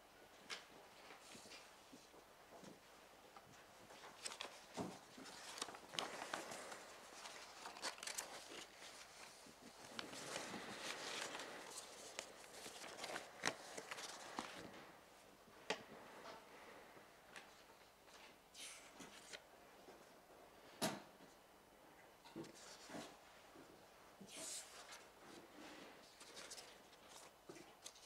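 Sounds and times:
paper rustling: 3.5s - 14.8s, 17.4s - 19.4s, 24.3s - 25.4s, 26.0s - 28.0s.

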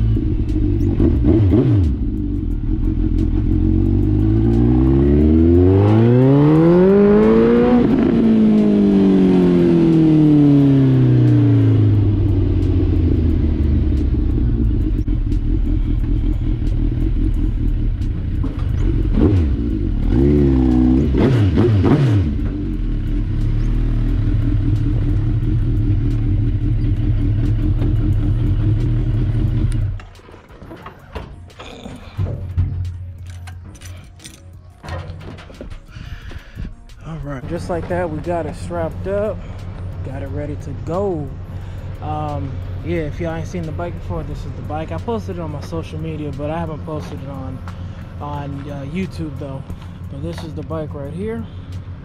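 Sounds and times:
motorcycle engine revving: 0.0s - 30.9s.

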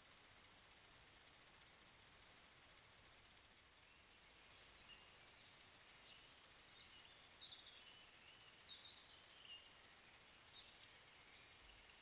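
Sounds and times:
faint hiss: 0.0s - 12.0s
faint high chirps: 3.8s - 12.0s.

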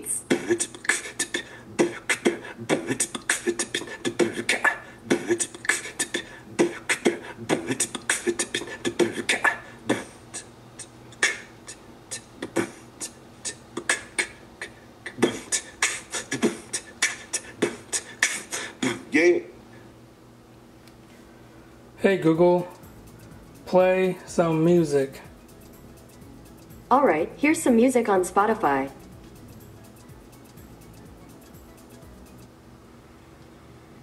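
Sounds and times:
beatboxing through small speaker: 0.0s - 19.2s, 22.5s - 26.9s, 28.3s - 32.5s.

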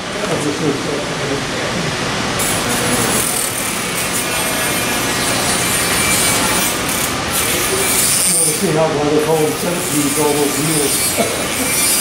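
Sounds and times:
metal wheels rolling on rails: 2.4s - 12.0s
model locomotive motor running: 2.4s - 12.0s.

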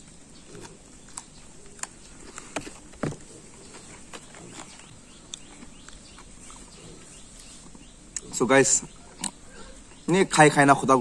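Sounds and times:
person chewing food: 0.4s - 8.3s.

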